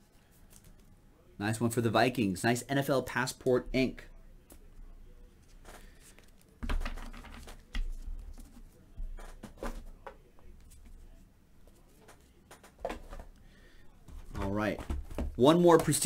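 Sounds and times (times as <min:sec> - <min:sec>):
light rustling of card packs: 0:00.0 - 0:01.0, 0:03.8 - 0:16.0.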